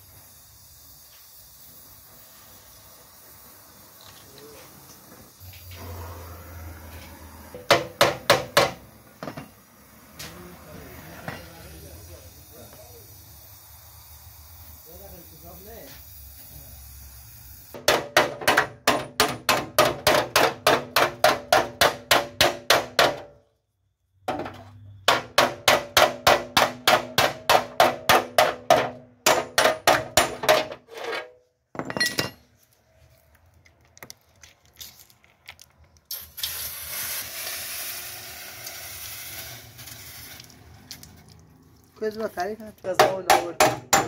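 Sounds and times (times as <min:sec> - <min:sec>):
steady hiss: 0:00.0 - 0:05.9, 0:08.6 - 0:17.8
hammer beating metal panel: 0:07.6 - 0:08.8, 0:17.8 - 0:23.4, 0:24.3 - 0:30.8, 0:43.0 - 0:44.0.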